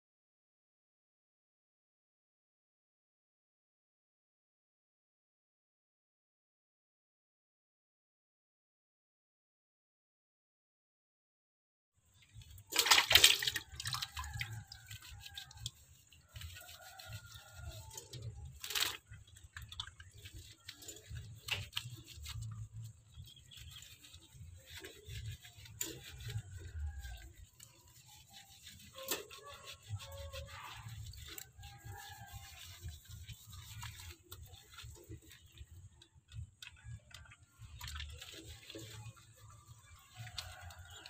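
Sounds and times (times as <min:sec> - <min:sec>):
water splashing: 0:12.2 - 0:35.7, 0:36.7 - 0:41.0
wet fur being rubbed: 0:12.2 - 0:36.0, 0:36.7 - 0:41.0.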